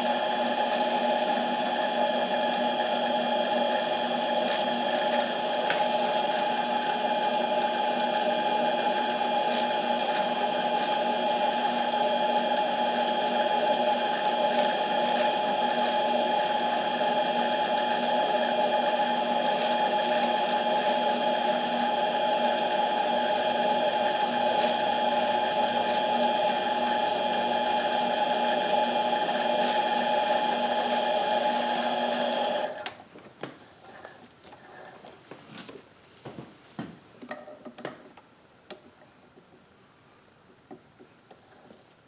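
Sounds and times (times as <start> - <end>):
lathe whining: 0.0 - 32.8.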